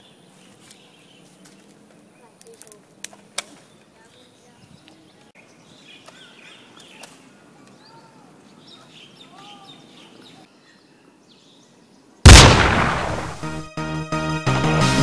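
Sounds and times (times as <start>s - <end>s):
faint outdoor ambience: 0.0s - 13.7s
loud blast: 12.3s - 13.7s.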